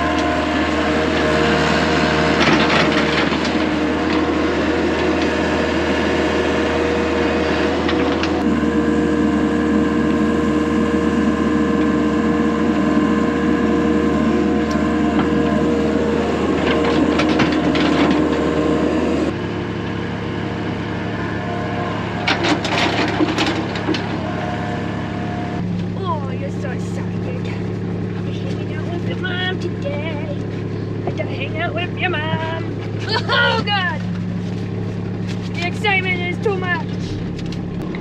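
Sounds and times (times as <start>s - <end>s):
excavator diesel engine running: 0.0s - 38.0s
bucket scraping and knocking: 16.5s - 18.6s.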